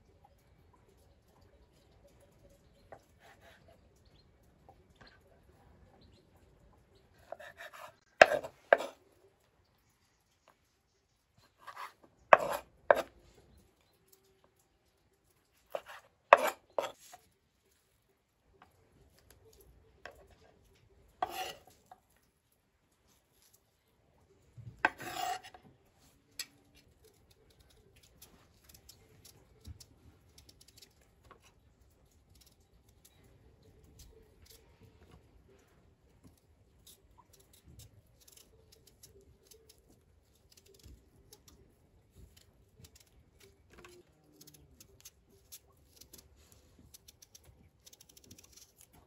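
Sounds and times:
knife scraping potato peel: 0:03.0 - 0:03.8, 0:07.2 - 0:09.0, 0:11.4 - 0:13.2, 0:15.6 - 0:17.3, 0:21.1 - 0:22.2, 0:24.8 - 0:25.8, 0:26.4 - 0:34.8, 0:36.3 - 0:49.0
knife chopping on wooden board: 0:07.3 - 0:08.9, 0:11.7 - 0:13.1, 0:15.8 - 0:17.0.

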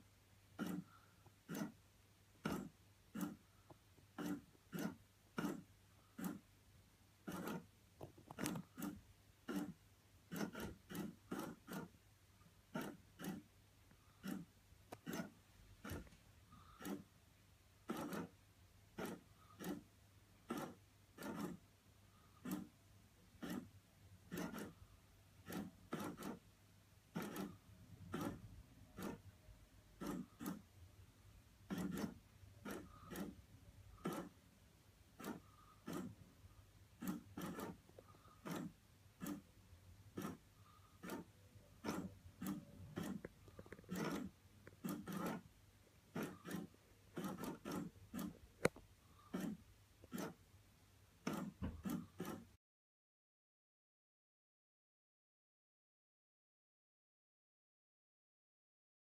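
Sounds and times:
toy mechanism scraping and clicking: 0:00.6 - 0:06.6, 0:07.2 - 0:17.2, 0:17.8 - 0:30.8, 0:31.6 - 0:34.4, 0:35.1 - 0:36.2, 0:36.9 - 0:50.5, 0:51.2 - 0:52.6.

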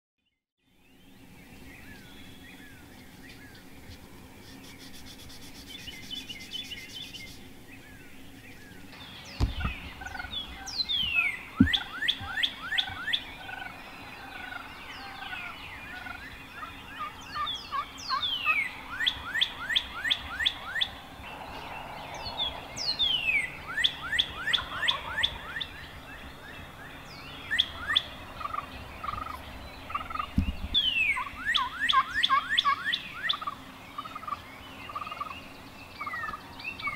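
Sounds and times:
birds chirping: 0:00.6 - 0:36.9
dull thumps: 0:09.4 - 0:13.0, 0:30.3 - 0:30.8
turkey gobbling: 0:09.6 - 0:20.9, 0:23.4 - 0:25.8, 0:27.6 - 0:30.3, 0:31.1 - 0:35.3.

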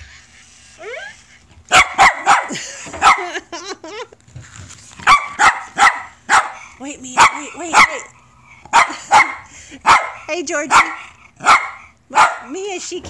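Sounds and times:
dog barking: 0:01.7 - 0:03.4, 0:05.0 - 0:06.6, 0:07.2 - 0:08.1, 0:08.7 - 0:12.6.

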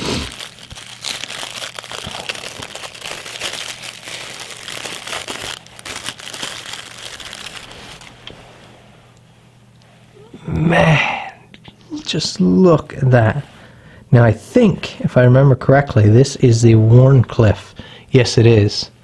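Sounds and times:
paper wrapping crackling: 0:00.0 - 0:08.2.

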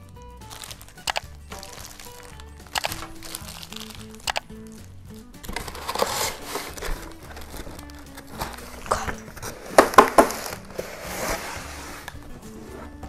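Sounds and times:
background music: 0:00.0 - 0:13.0
cardboard box being opened: 0:05.5 - 0:13.0
sharp knocks: 0:09.6 - 0:10.6.

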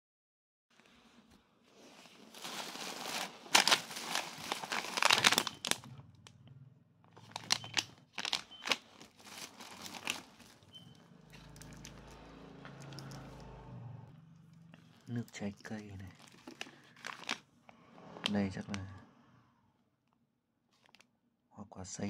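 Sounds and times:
plastic bag crinkling: 0:01.8 - 0:05.9, 0:07.2 - 0:13.4, 0:14.4 - 0:17.5, 0:20.8 - 0:21.0
packaging clicks: 0:02.4 - 0:05.9, 0:07.2 - 0:12.2, 0:12.8 - 0:13.4, 0:14.9 - 0:17.4.

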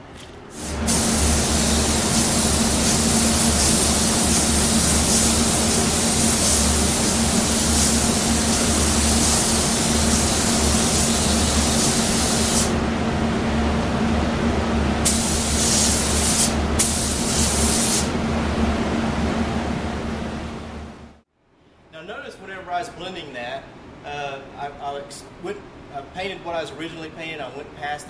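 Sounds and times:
steady low hum: 0:00.0 - 0:28.0
paint spray gun hissing: 0:00.5 - 0:12.8, 0:15.0 - 0:18.1.

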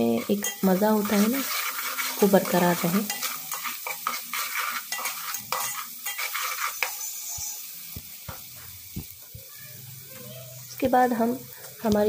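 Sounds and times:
metal ladle stirring and scraping: 0:00.0 - 0:07.7
onions sizzling in hot oil: 0:00.0 - 0:12.0.

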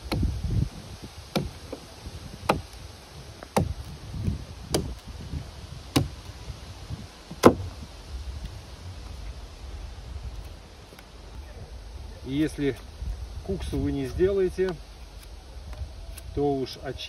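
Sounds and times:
knife chopping wood: 0:00.0 - 0:00.4, 0:01.3 - 0:02.8, 0:03.4 - 0:05.1, 0:05.9 - 0:06.3, 0:07.3 - 0:07.7.

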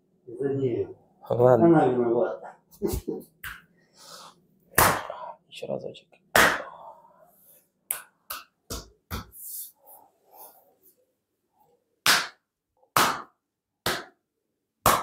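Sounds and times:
hand slapping bare back: 0:03.4 - 0:03.7, 0:04.7 - 0:05.1, 0:06.3 - 0:06.7, 0:07.9 - 0:09.4, 0:12.0 - 0:14.2.

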